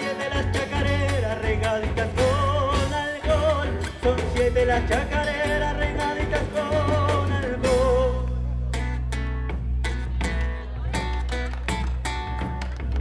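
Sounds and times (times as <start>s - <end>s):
drum beat: 0.0s - 8.1s
person singing: 0.0s - 8.6s
bass line: 0.0s - 13.0s
strummed guitars: 0.0s - 13.0s.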